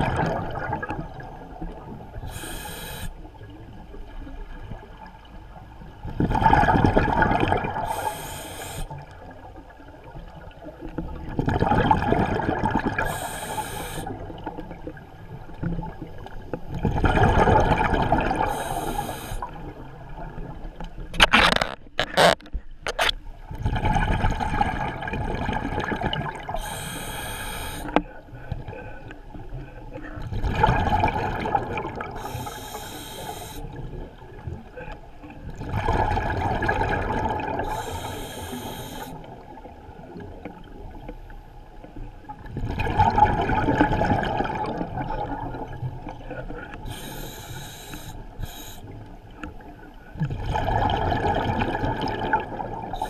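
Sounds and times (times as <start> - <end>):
inhalation hiss: 2.2 - 3.2, 7.9 - 9.0, 13.0 - 14.2, 18.5 - 19.5, 26.6 - 28.0, 32.2 - 33.7, 37.6 - 39.2, 46.9 - 49.0.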